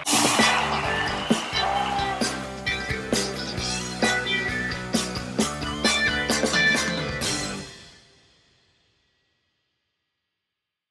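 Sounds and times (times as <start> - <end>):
instrumental band music: 0.0 - 7.8.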